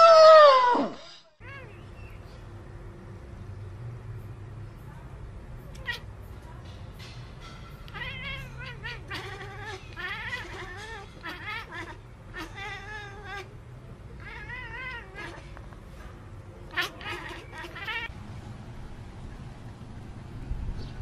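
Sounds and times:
cat chirping and meowing: 1.4s - 2.1s, 5.7s - 6.1s, 7.9s - 13.6s, 14.2s - 15.6s, 16.7s - 18.1s.

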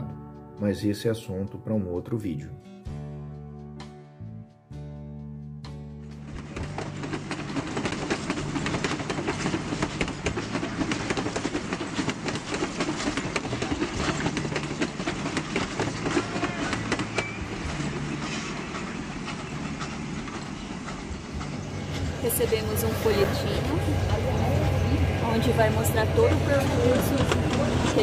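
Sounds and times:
train rumble: 6.0s - 28.0s
wheel clicks on rails: 6.2s - 28.0s.

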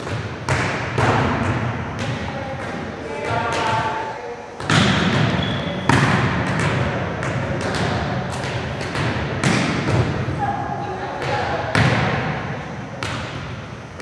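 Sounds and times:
volleyballs thudding on arms: 0.0s - 3.9s, 4.6s - 10.3s, 11.2s - 14.0s
balls bouncing on wooden floor: 4.6s - 10.2s.

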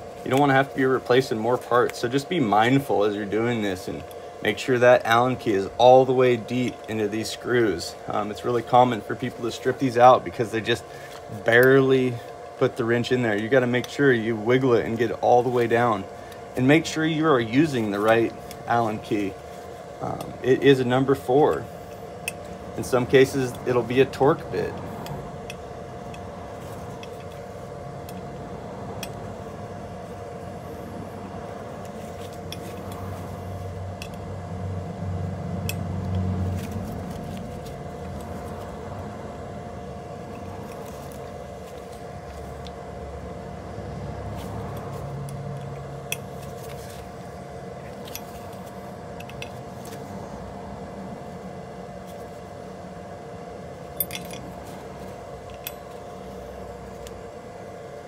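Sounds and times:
steady two-pitched hum: 0.0s - 58.0s
allen key clicking on screws: 54.0s - 54.5s.

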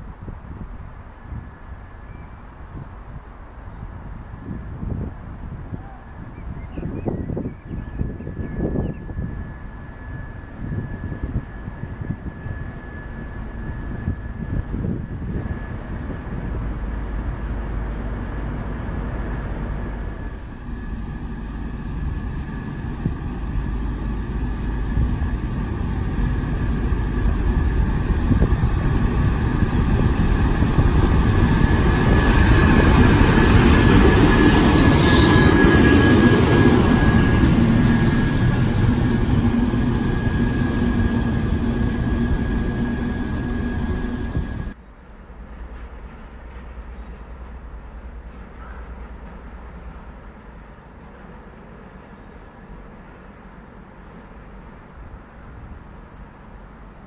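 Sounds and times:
diesel locomotive passing: 0.0s - 57.0s
distant train: 0.0s - 57.0s
high engine whine: 7.3s - 44.8s.

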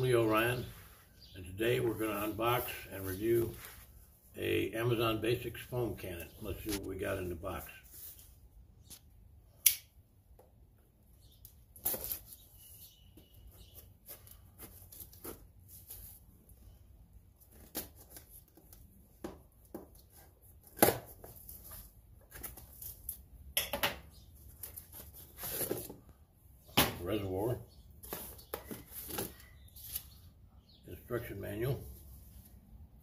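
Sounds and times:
cardboard scraping and rustling: 24.5s - 26.1s.

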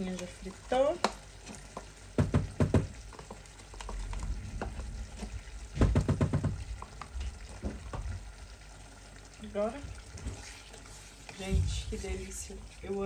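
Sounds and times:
spoon scraping a pan: 10.2s - 12.5s.

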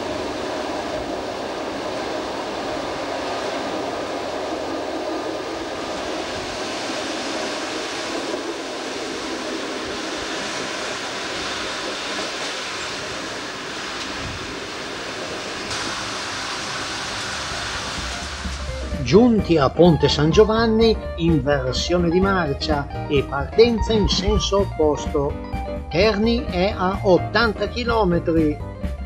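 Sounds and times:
bright hiss: 0.0s - 19.0s
train wheels rolling on track: 0.0s - 19.2s
diesel railcar engine running: 0.0s - 22.0s.

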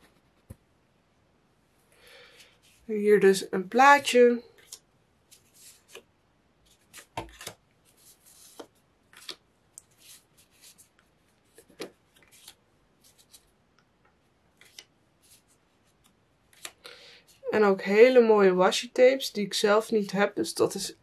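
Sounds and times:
paper rustling and sliding: 4.6s - 13.5s.

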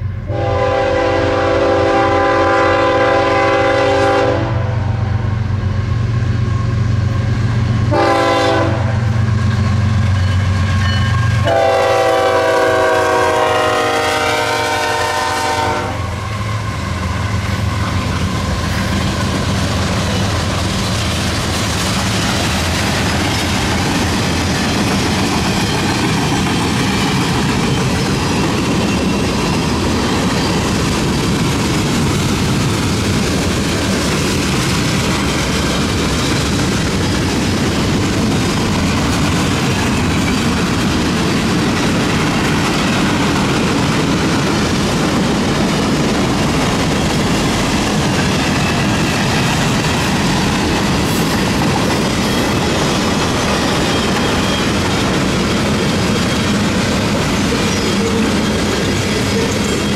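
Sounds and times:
locomotive air horn blasts: 0.2s - 5.0s, 7.9s - 9.1s, 11.4s - 16.2s
train wheels clattering on rails: 5.5s - 59.9s.

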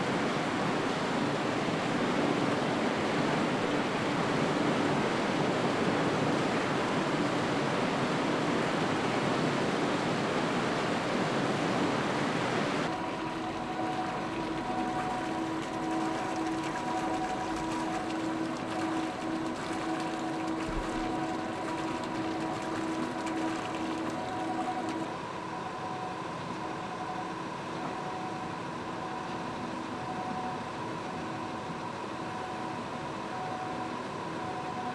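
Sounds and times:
machine hum with held tones: 11.7s - 34.9s
water pouring from a pipe: 12.9s - 25.1s.

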